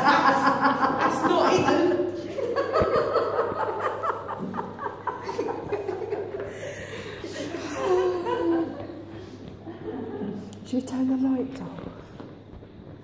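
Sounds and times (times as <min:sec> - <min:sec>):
people laughing quietly: 0:00.0 - 0:10.6.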